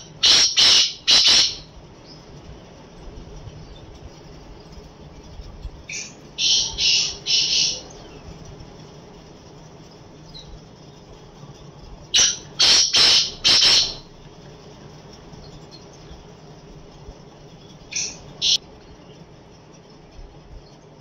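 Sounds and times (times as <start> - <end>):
francolin calling: 0.0 - 2.4, 5.8 - 8.4, 11.5 - 14.2, 17.7 - 19.1.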